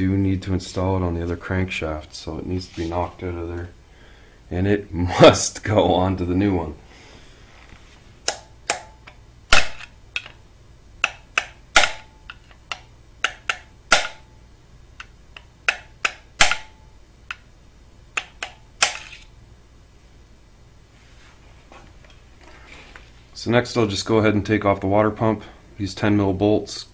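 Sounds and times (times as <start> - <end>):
hammer tapping metal punch: 8.3 - 10.4, 11.0 - 14.3, 15.0 - 17.5, 18.2 - 19.2.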